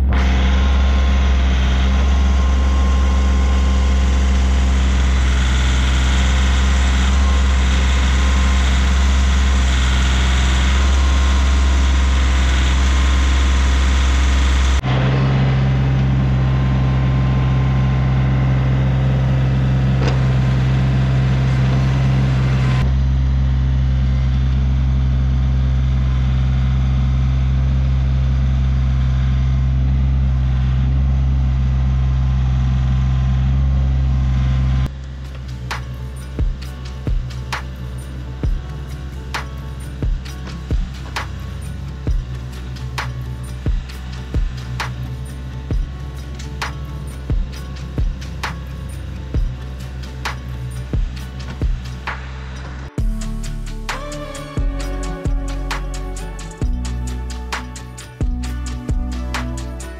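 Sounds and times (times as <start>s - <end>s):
backhoe digging soil: 0.0s - 22.9s, 34.9s - 52.9s
tractor engine running: 0.0s - 59.9s.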